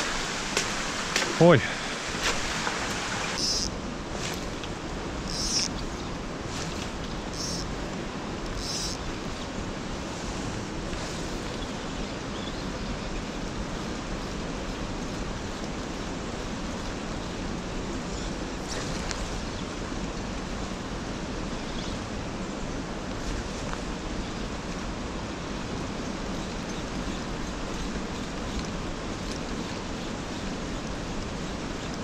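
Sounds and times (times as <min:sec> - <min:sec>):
river water rushing over rocks: 0:00.0 - 0:12.3.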